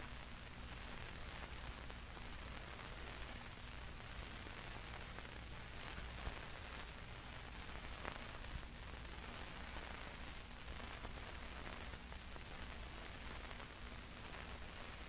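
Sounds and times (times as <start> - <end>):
film soundtrack hiss and hum: 0.0 - 15.0.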